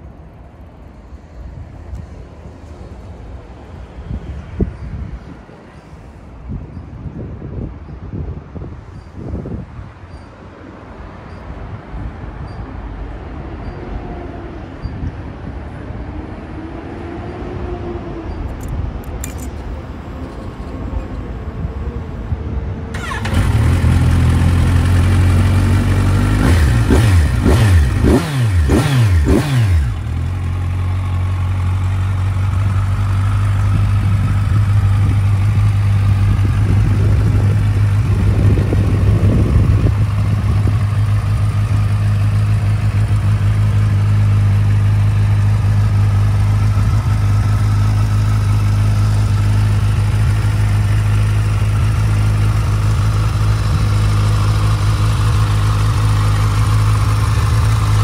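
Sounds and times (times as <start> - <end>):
motorcycle engine revving and idling: 22.9 - 58.0.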